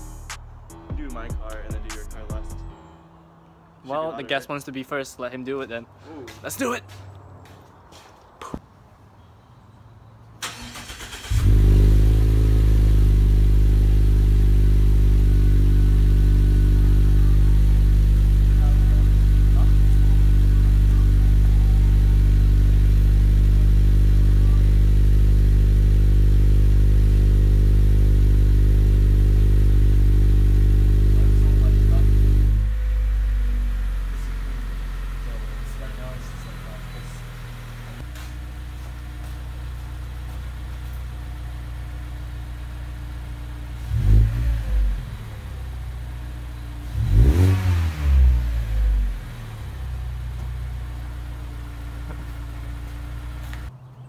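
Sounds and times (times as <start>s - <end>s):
car engine cranking: 10.4s - 38.0s
car engine idling loudly: 11.4s - 37.8s.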